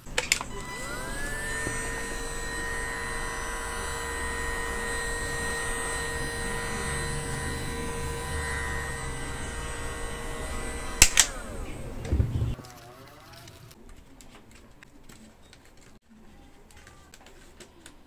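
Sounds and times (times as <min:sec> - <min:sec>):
heat gun fan whine: 0:00.0 - 0:12.6.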